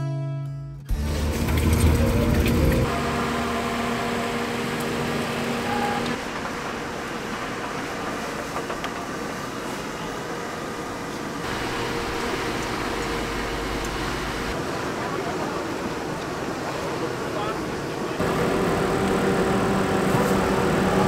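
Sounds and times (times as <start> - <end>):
outdoor street noise: 0.8 - 21.0.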